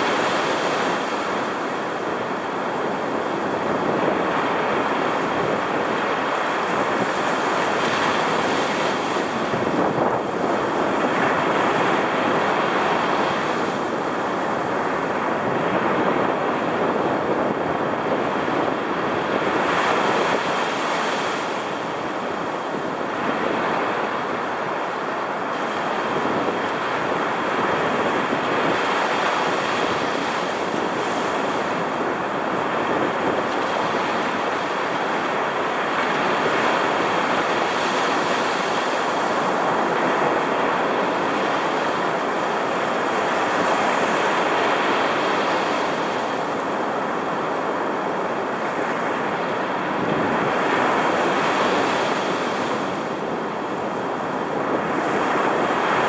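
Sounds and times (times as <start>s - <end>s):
waves breaking on sand: 0.0s - 56.0s
wind: 0.0s - 56.0s.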